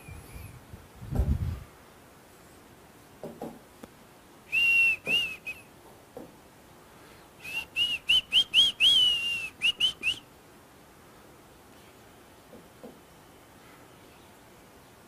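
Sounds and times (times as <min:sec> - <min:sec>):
person whistling short high notes: 0:04.5 - 0:05.6, 0:07.4 - 0:10.2.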